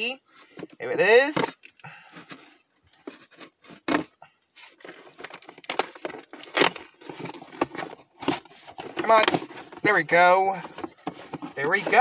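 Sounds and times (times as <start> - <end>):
toy packaging rustling and scraping: 0.3 - 12.0.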